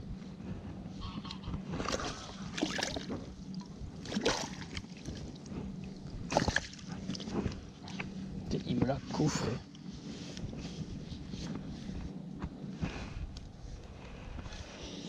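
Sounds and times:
water splashing in landing net: 1.9s - 3.1s, 4.1s - 4.9s, 6.3s - 6.8s.

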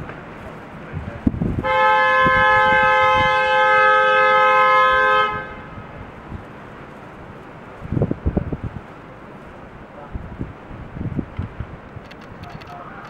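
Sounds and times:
car horn blast: 1.6s - 5.7s.

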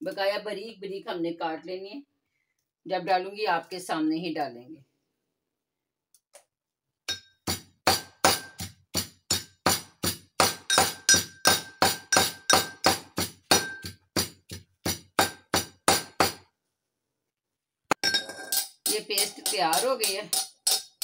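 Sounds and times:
steel pestle pounding in mortar: 7.1s - 16.4s, 18.0s - 21.0s.

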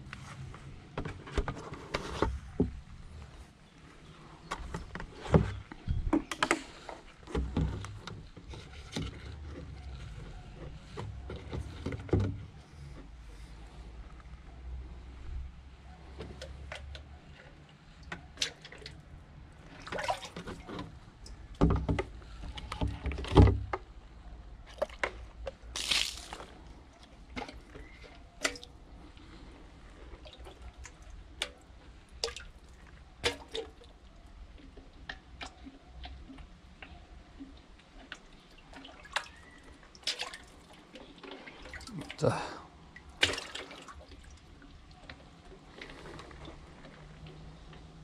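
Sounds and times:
water dripping and splashing: 18.0s - 20.4s, 24.8s - 27.5s, 30.2s - 45.4s.

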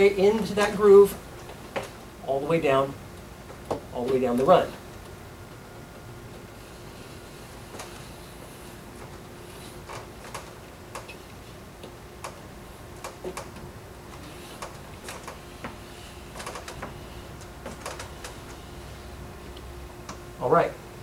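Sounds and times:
reflector material clicking: 8.9s - 18.6s, 19.4s - 20.3s.

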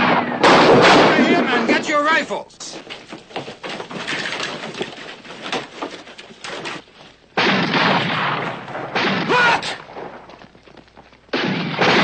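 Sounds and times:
loud gunfire: 0.0s - 1.7s, 7.4s - 10.3s, 11.3s - 12.0s
clattering and knocks: 2.8s - 6.9s.

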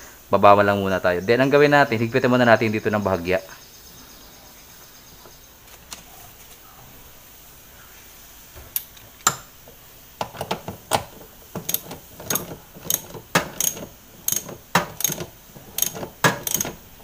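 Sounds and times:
ratchet wrench clicking: 10.2s - 16.9s.

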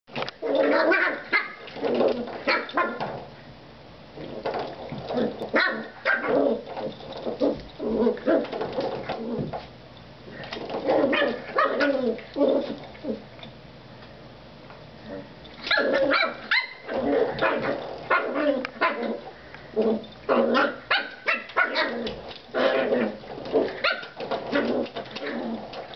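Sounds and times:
puppy growling and yipping: 0.4s - 3.0s, 5.1s - 9.5s, 10.7s - 13.3s, 15.0s - 25.9s.

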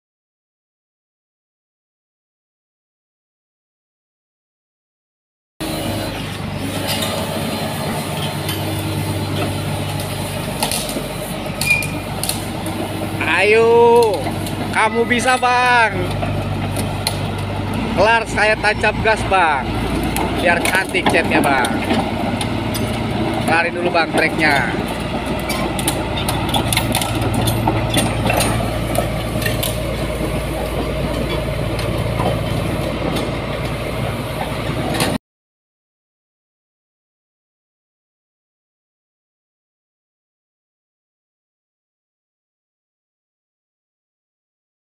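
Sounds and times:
bulldozer diesel engine running: 5.6s - 35.2s
metal clanks and rattles: 13.8s - 33.4s.

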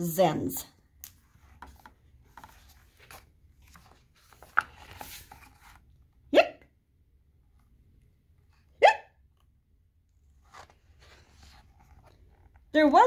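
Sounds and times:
book pages turning: 1.0s - 6.1s, 10.2s - 12.9s
person imitating hiccup: 6.3s - 6.7s, 8.8s - 9.2s.

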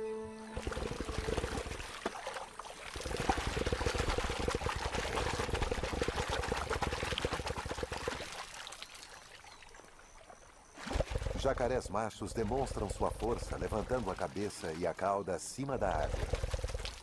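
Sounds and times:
water spattering in a rattle: 0.6s - 9.4s.

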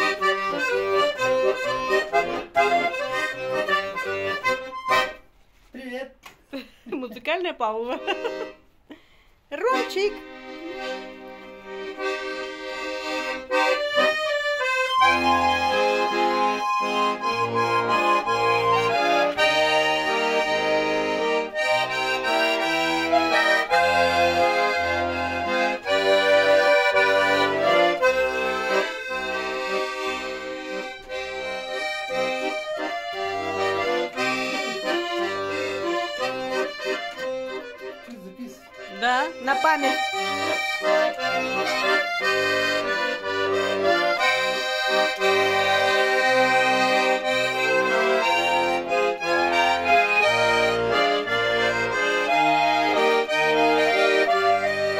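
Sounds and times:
button accordion playing a tune: 0.0s - 5.7s, 7.0s - 54.9s.

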